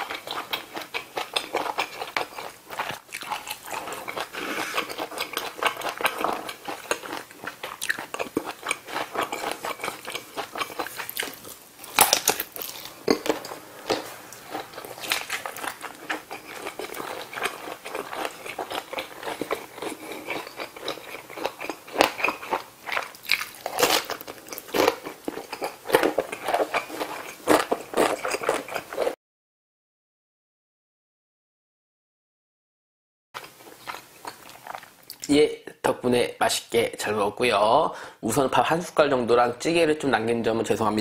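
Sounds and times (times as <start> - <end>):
person chewing and biting food: 0.0 - 29.2, 33.4 - 35.3.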